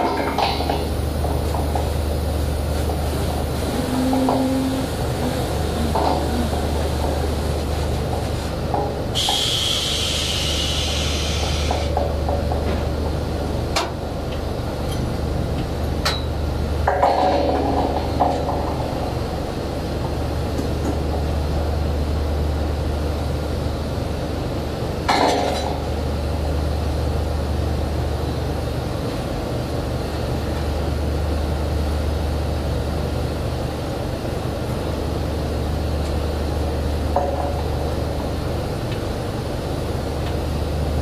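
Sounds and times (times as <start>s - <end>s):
drilling rig machinery drone: 0.8s - 12.0s.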